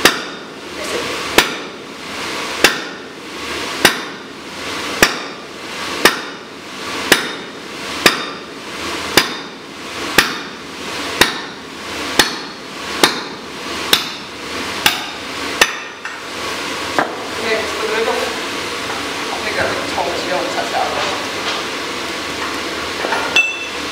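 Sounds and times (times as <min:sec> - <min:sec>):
sledgehammer striking metal: 0:00.0 - 0:00.5, 0:02.6 - 0:03.1, 0:03.8 - 0:04.2, 0:05.0 - 0:05.4, 0:06.0 - 0:06.4, 0:07.1 - 0:08.5, 0:09.1 - 0:09.6, 0:10.2 - 0:10.6, 0:11.2 - 0:11.6, 0:12.2 - 0:16.0.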